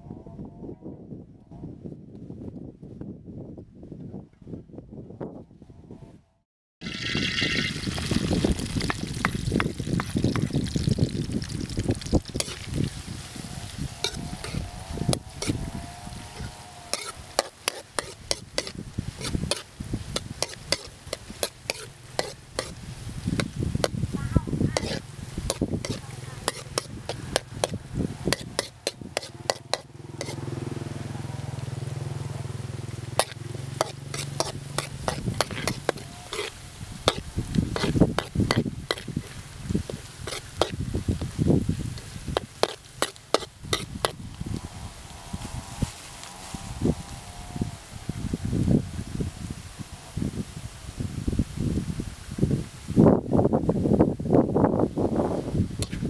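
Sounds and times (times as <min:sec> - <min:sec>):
food sizzling in hot oil: 0:06.8 - 0:15.6, 0:16.9 - 0:30.4, 0:33.1 - 0:44.2
metal spatula scraping wok: 0:12.3 - 0:12.7, 0:13.3 - 0:24.0, 0:24.6 - 0:30.5, 0:33.1 - 0:40.8, 0:42.0 - 0:44.2.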